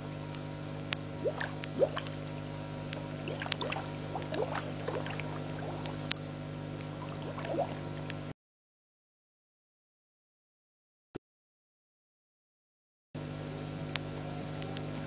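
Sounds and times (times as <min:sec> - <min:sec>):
steady hum: 0:00.0 - 0:08.3, 0:13.2 - 0:15.0
frogs calling and trilling: 0:00.2 - 0:08.2, 0:14.3 - 0:14.8.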